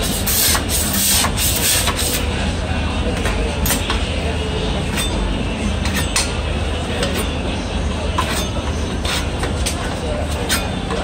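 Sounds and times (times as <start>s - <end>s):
spatula scraping on steel griddle: 0.0s - 2.3s, 8.2s - 9.5s.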